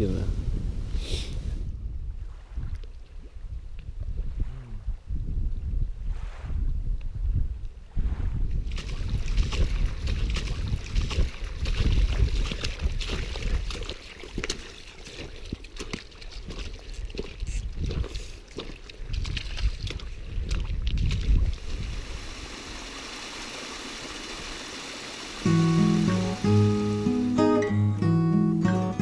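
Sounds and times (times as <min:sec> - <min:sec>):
wind buffeting microphone: 0:00.0 - 0:22.8
footsteps splashing on stones: 0:08.7 - 0:22.2
small waterfall rushing: 0:21.6 - 0:27.6.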